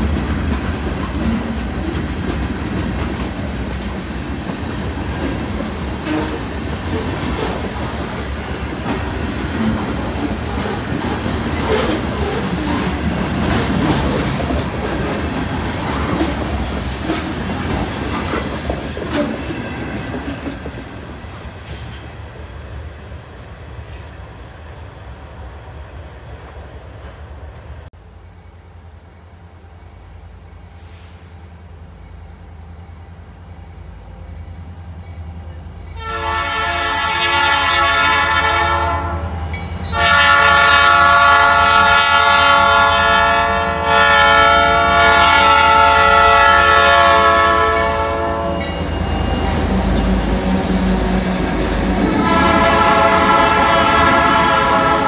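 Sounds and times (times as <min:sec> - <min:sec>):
train clattering over rails: 0:00.0 - 0:22.4, 0:44.5 - 0:55.0
locomotive air horn blasts: 0:36.0 - 0:48.7, 0:52.1 - 0:55.0.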